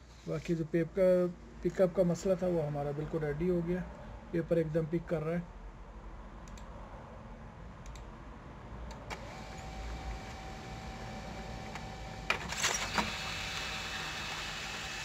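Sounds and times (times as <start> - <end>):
printer motor whine: 9.1 - 15.0
paper feed clicks and rattles: 12.3 - 13.8.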